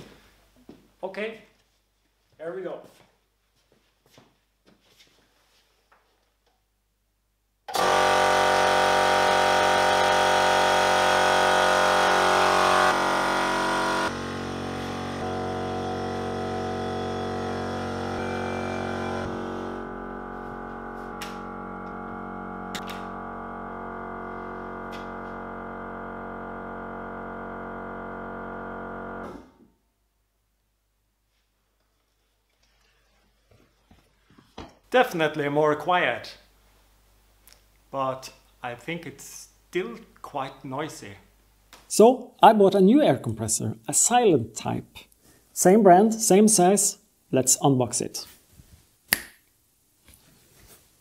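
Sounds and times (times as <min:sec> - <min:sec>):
air compressor humming: 0:07.7 - 0:29.6.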